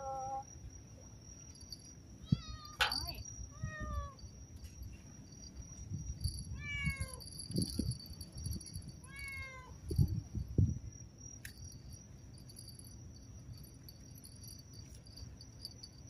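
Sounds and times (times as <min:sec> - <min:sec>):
crickets chirring: 0:00.0 - 0:16.0
cat meowing: 0:02.2 - 0:02.9, 0:03.5 - 0:04.2, 0:06.6 - 0:07.2, 0:09.0 - 0:09.8.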